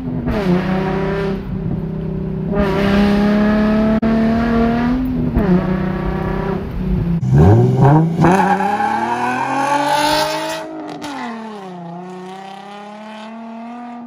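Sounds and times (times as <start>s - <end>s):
car engine accelerating: 0.0s - 14.0s.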